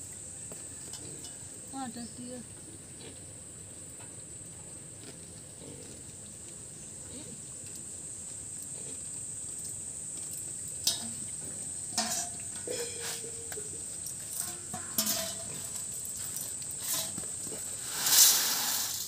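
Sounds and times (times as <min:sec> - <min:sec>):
steel bowls clinking on concrete: 0:10.8 - 0:17.7.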